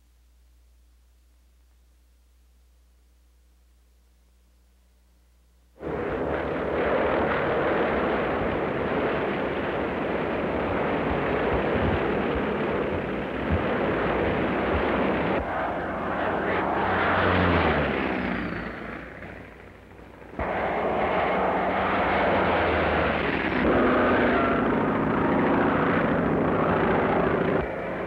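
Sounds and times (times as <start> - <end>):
propeller aircraft engines passing: 5.8 - 28.0.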